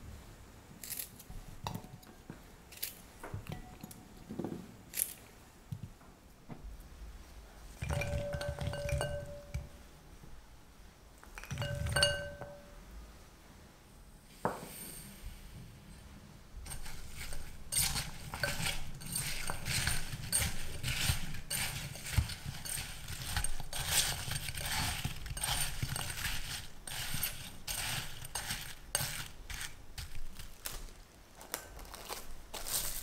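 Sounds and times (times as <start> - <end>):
spatula scraping sugar in glass bowl: 7.8 - 9.7, 16.7 - 30.4.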